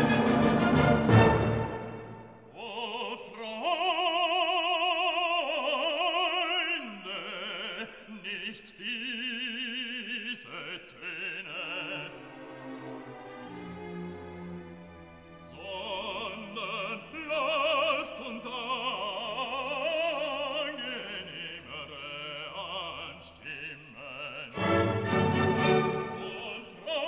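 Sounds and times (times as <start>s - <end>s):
orchestral music: 0.0s - 2.5s, 11.7s - 18.0s, 24.5s - 27.0s
operatic singing with vibrato: 0.0s - 27.0s.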